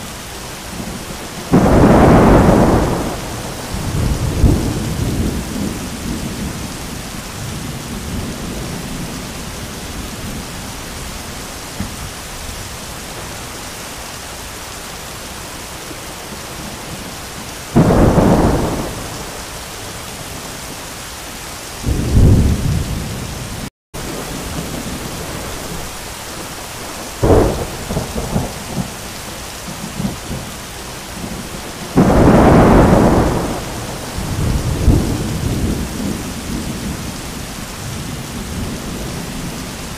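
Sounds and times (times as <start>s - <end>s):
heavy rain: 0.0s - 39.9s
thunder claps: 1.5s - 6.7s, 17.7s - 19.5s, 21.8s - 23.4s, 24.0s - 29.0s, 31.2s - 37.1s.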